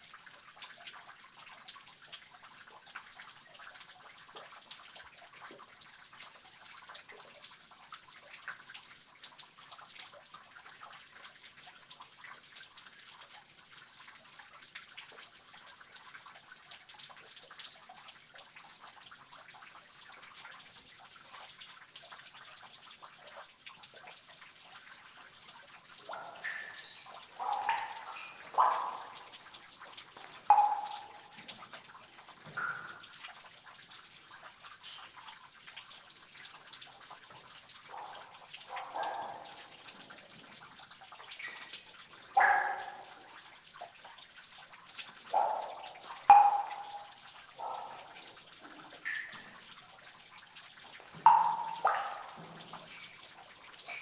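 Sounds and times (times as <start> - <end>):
water dripping: 0.0 - 54.0
running water hiss: 25.5 - 33.4, 36.7 - 43.4, 45.1 - 54.0.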